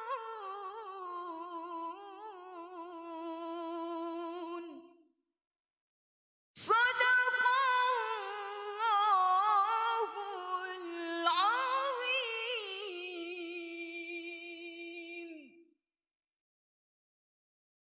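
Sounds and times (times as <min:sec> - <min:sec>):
girl singing melismatic recitation: 0:00.0 - 0:04.8, 0:06.6 - 0:15.2.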